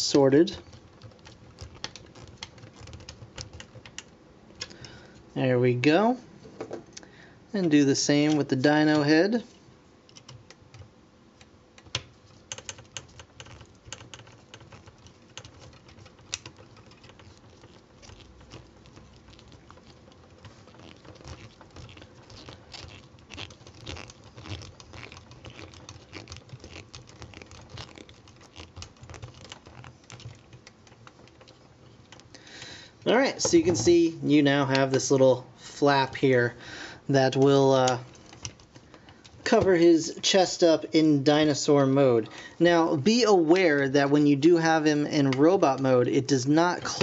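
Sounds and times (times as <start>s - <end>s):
screwdriver turning a screw: 11.8s - 32.3s.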